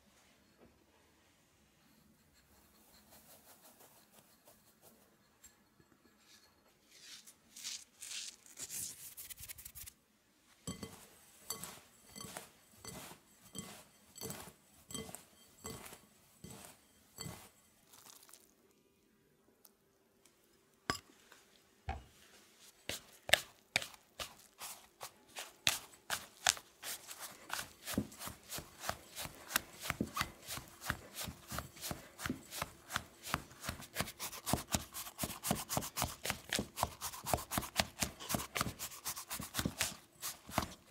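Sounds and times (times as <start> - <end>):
plastic scraper scraping pastry in bowl: 23.3 - 40.9.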